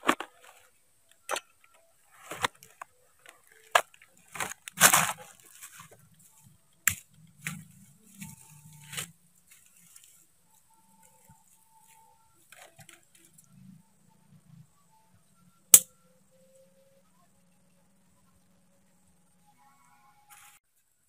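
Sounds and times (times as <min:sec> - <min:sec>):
footsteps crunching dry leaves: 0:03.5 - 0:06.4.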